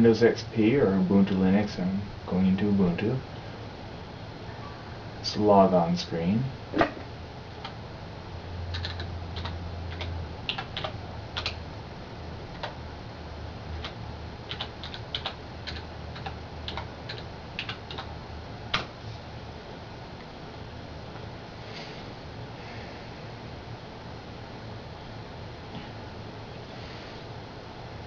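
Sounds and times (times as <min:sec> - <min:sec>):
computer keyboard typing: 0:08.7 - 0:11.6, 0:12.5 - 0:12.8, 0:13.8 - 0:18.1.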